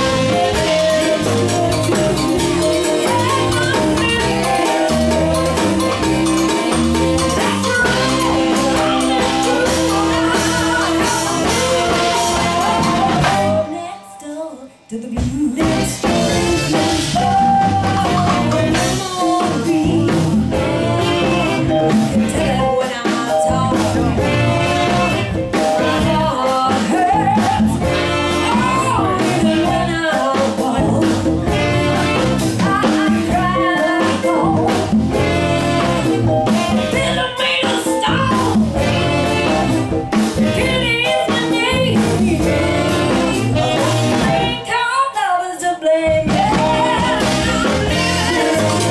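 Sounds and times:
live blues band playing: 0.0 - 48.9
woman singing: 0.0 - 48.9.

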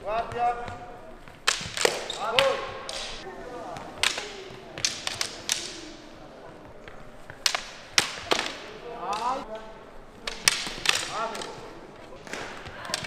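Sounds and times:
training swords clacking: 1.2 - 13.0
faint voices: 2.0 - 13.0.

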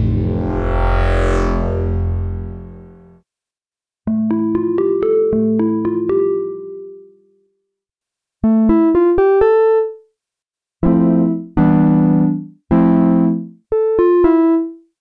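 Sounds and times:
synthesizer keys notes and chords: 0.0 - 3.1, 4.1 - 7.2, 8.4 - 10.0, 10.8 - 14.8.

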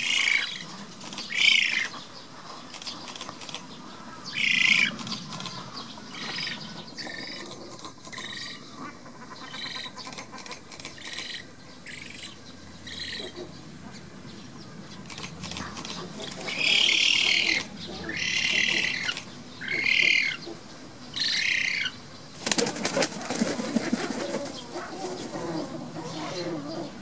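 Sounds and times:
bird chick calling: 0.0 - 14.0, 15.1 - 20.6.

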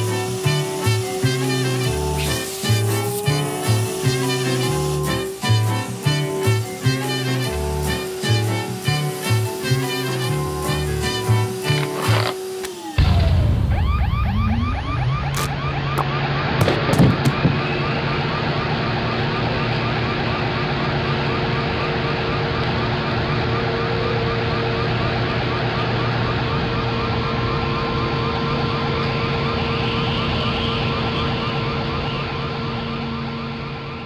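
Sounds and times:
electronic warble chirps: 0.0 - 16.6.

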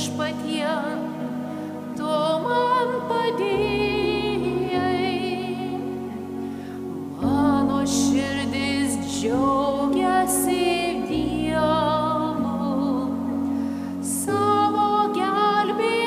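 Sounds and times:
solo voice singing with vibrato: 0.0 - 6.4, 7.2 - 13.4, 14.0 - 16.0
sustained accompaniment chords: 0.0 - 16.0.

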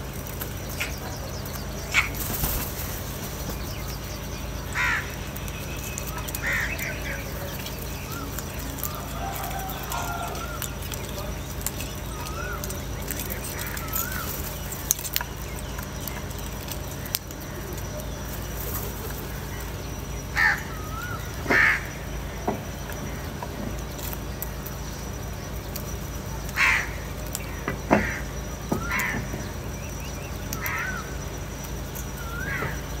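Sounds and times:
crows cawing: 4.6 - 5.4, 6.0 - 7.5, 8.1 - 10.9, 12.1 - 14.6, 20.3 - 22.2, 26.5 - 29.4, 30.6 - 31.2, 32.2 - 32.9.

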